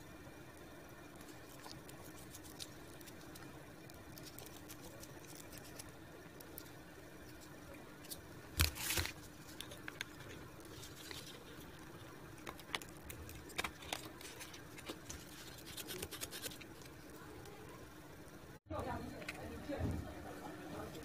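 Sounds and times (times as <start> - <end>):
hands handling cardboard pieces: 8.0 - 11.8.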